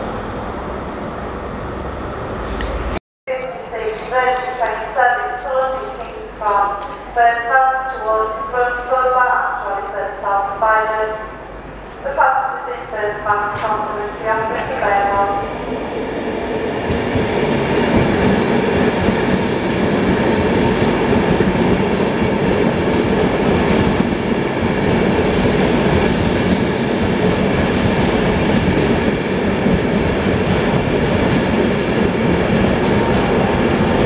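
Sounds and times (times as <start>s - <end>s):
train wheels rumbling on rail: 13.2s - 34.0s.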